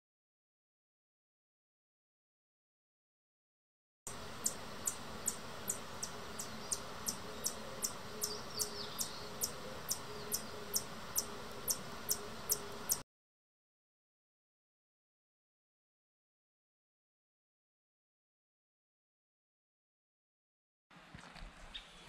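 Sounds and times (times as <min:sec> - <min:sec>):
steady hiss: 0:04.1 - 0:13.0.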